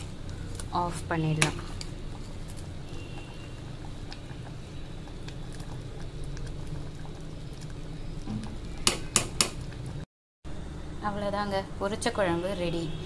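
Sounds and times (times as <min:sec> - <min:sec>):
curry bubbling in a pot: 0:00.0 - 0:10.1
steady low hum: 0:00.0 - 0:13.0.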